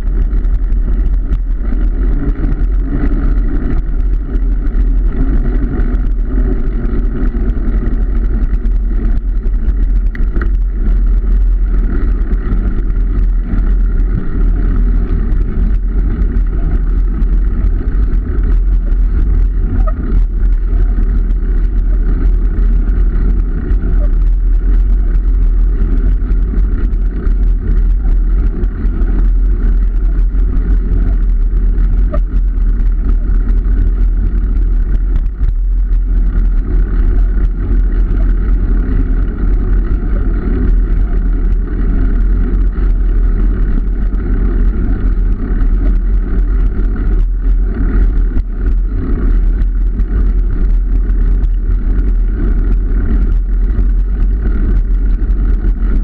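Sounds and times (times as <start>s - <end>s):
road noise: 0.0s - 56.0s
wind noise: 0.0s - 56.0s.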